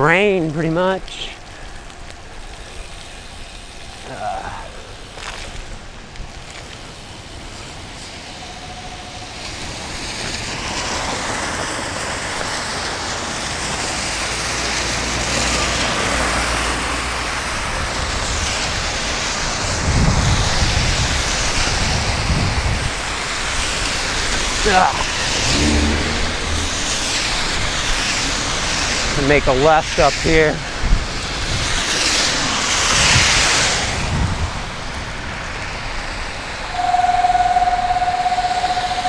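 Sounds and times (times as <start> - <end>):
tyres hissing on wet pavement: 0.3 - 36.8
wind rumble on microphone: 17.5 - 28.1, 30.7 - 31.9, 32.6 - 36.1.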